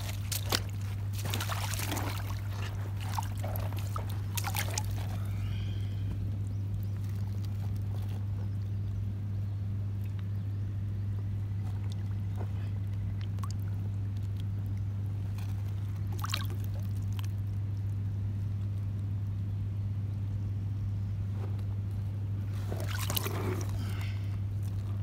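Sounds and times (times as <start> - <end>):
water splashing: 0.0 - 5.3, 16.1 - 17.3, 22.6 - 24.0
river water trickling and lapping: 0.0 - 8.6, 11.6 - 18.8, 22.5 - 25.0
steady low hum: 0.0 - 25.0.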